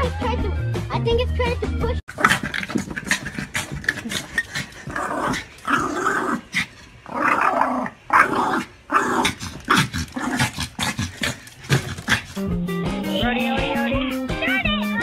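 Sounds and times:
small dog growling: 2.1 - 12.5.

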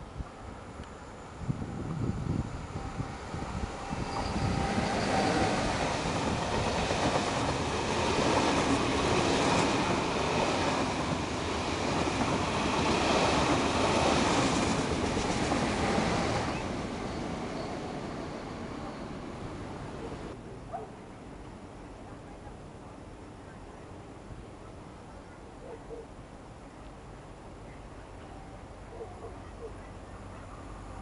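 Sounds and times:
passenger train passing: 0.0 - 20.4.

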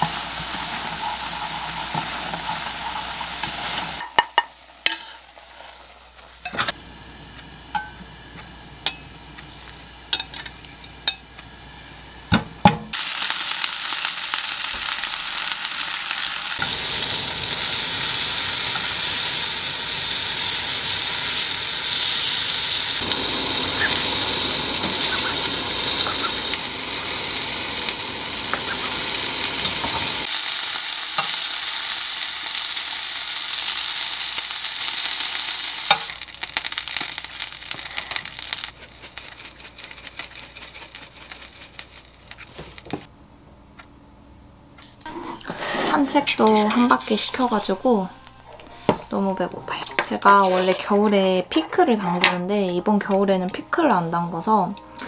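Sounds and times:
meat sizzling in a pan: 0.0 - 6.4, 12.9 - 43.1.

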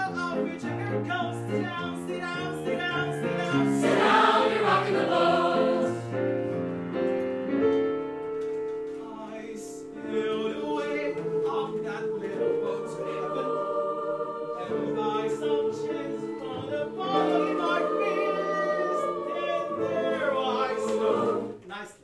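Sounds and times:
choir singing in harmony: 2.7 - 6.6, 9.8 - 21.6.

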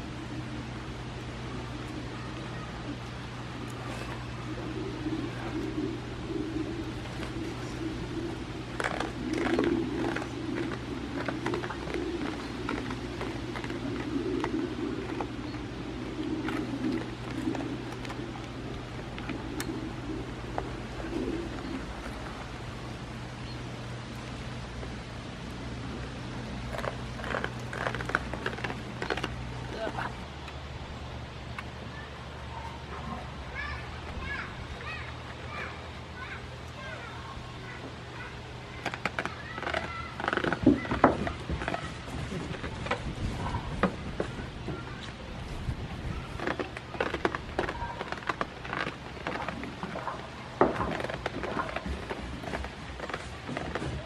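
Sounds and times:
steady low hum: 0.0 - 54.0
goats crunching treats: 1.8 - 23.4, 25.9 - 30.7, 38.2 - 54.0.

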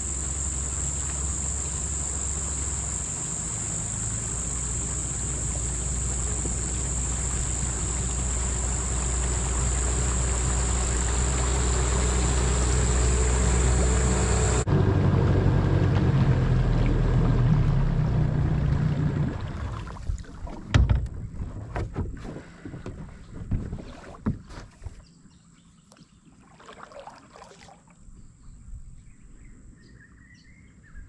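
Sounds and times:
high-pitched insect drone: 0.0 - 14.7
outboard motor running: 0.0 - 27.8.

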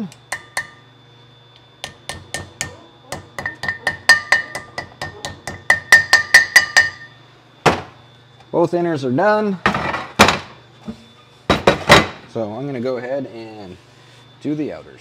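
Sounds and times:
hammer tapping metal: 0.3 - 0.8, 1.8 - 7.2.

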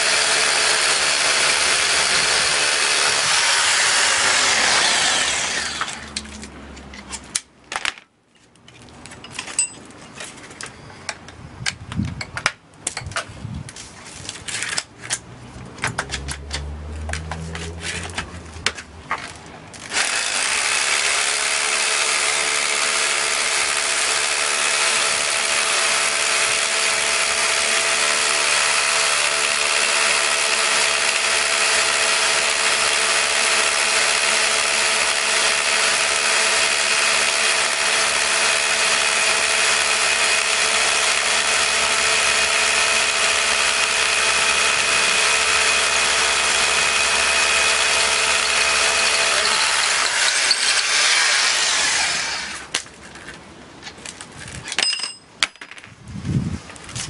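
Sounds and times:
high drill whine: 0.0 - 6.2, 21.8 - 52.7
rotary hammers drilling concrete: 0.0 - 6.3, 19.8 - 52.8.

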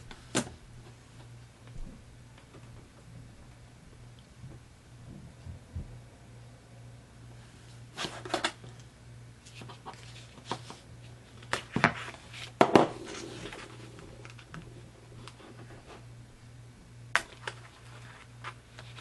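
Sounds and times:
low steady hum: 0.0 - 19.0
paper rustling: 9.4 - 14.5, 17.2 - 19.0.

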